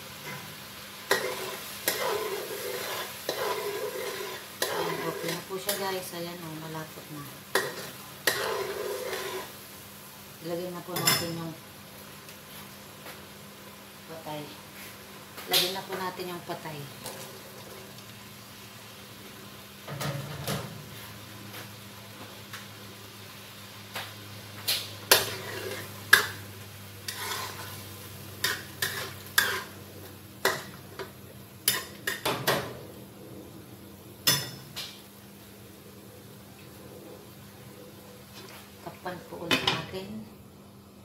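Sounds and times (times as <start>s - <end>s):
utensil scraping and knocking a wok: 0.2s - 5.8s, 7.5s - 9.6s, 24.7s - 27.8s, 28.4s - 29.8s, 30.4s - 32.8s.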